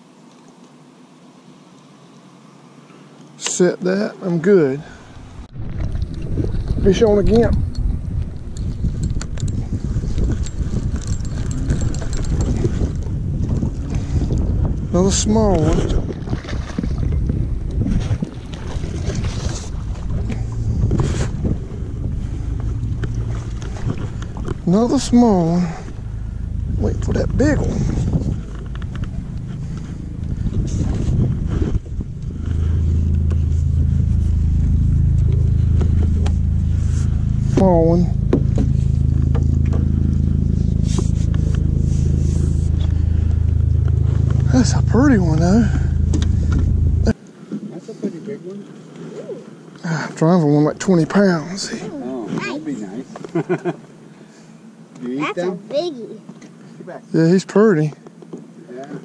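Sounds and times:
engine hum with fast pulse: 4.8 - 47.5
wind buffeting microphone: 5.2 - 47.2.

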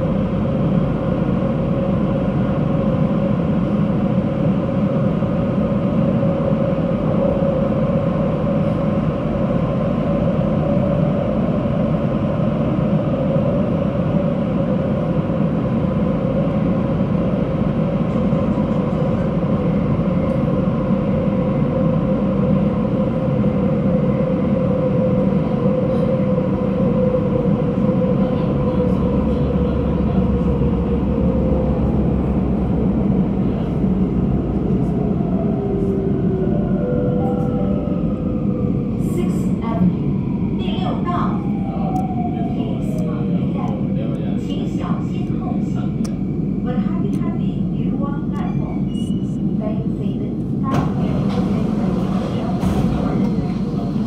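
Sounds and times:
metro train running in tunnel: 0.0 - 54.0.

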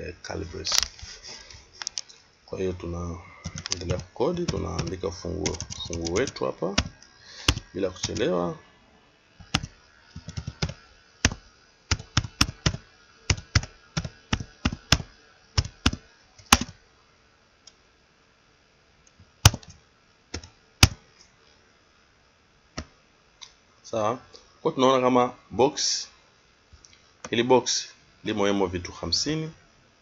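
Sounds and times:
computer keyboard typing: 3.4 - 8.3, 9.4 - 16.8, 19.4 - 19.8, 20.4 - 21.0.

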